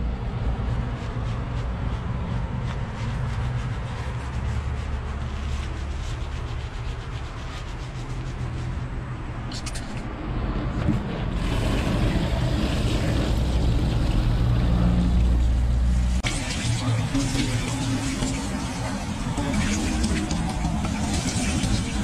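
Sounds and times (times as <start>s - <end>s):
hands scrubbing lather into hair: 0.4s - 10.0s, 15.8s - 22.0s
shower head spraying water: 15.8s - 22.0s.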